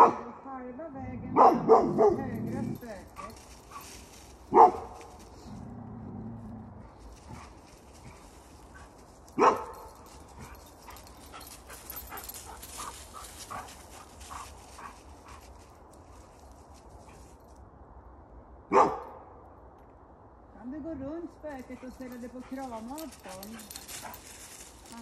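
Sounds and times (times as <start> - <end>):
dog barking: 0.0 - 0.3, 1.4 - 2.3, 4.5 - 5.0, 9.4 - 9.9, 18.7 - 19.2.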